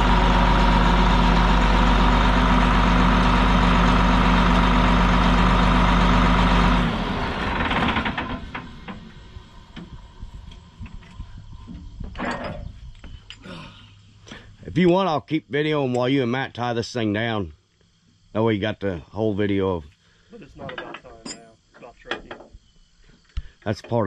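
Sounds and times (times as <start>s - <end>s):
heavy diesel engine running: 0.0s - 10.4s.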